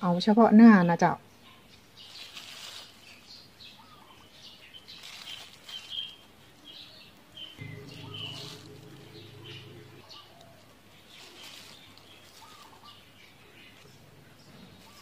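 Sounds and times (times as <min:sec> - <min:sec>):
bird chirps: 0:03.4 - 0:15.0
dove cooing: 0:07.6 - 0:15.0.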